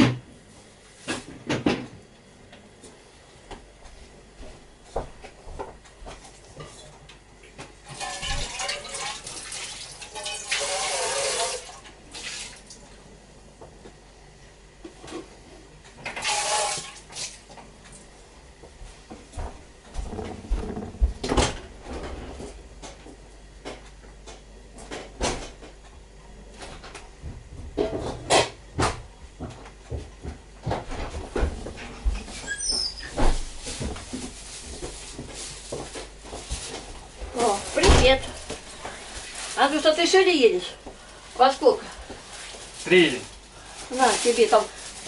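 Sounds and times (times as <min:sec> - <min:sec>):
pot and utensils clattering: 0:07.9 - 0:11.6.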